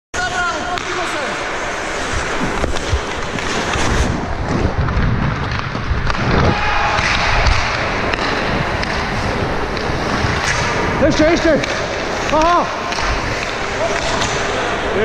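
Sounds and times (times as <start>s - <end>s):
ice skates scraping ice: 0.2s - 15.0s
stick and puck knocks: 0.7s - 1.2s, 2.3s - 3.9s, 7.0s - 10.8s, 11.6s - 14.5s
wind rumbling on microphone: 1.9s - 15.0s.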